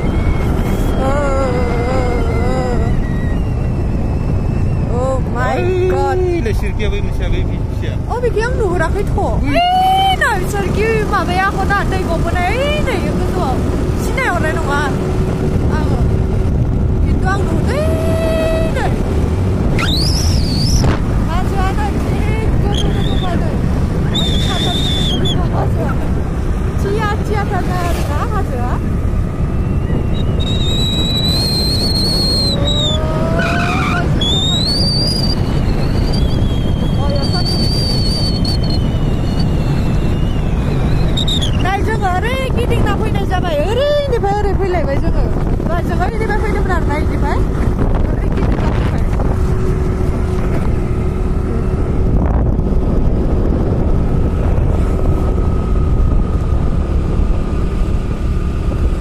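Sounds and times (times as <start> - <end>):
low tone rising in pitch: 0.0 - 7.7, 22.4 - 44.3
engine and road drone: 0.0 - 59.0
wind buffeting microphone: 0.0 - 59.0.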